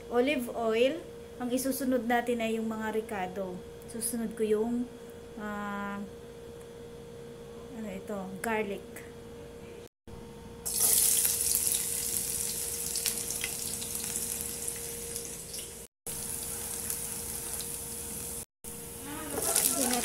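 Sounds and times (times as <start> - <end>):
garlic sizzling in hot oil: 10.7 - 20.0.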